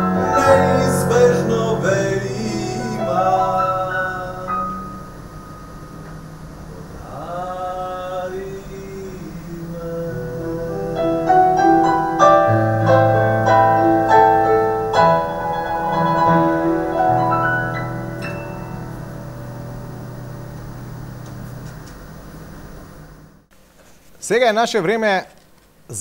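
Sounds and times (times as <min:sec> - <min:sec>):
man singing: 0:00.0 - 0:05.0, 0:07.0 - 0:11.5
digital piano broken chords: 0:00.0 - 0:07.0, 0:10.1 - 0:23.4.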